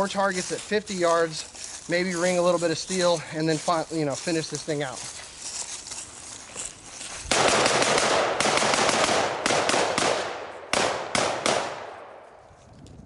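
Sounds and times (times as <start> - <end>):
rapid rifle fire: 7.3 - 12.1
gunshot echo: 7.3 - 12.3.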